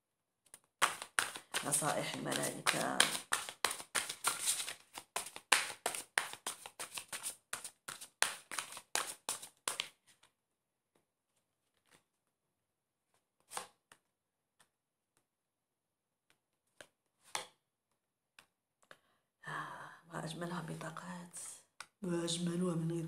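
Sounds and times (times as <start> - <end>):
cards being shuffled: 0.5 - 10.3, 11.7 - 12.1, 13.1 - 14.7.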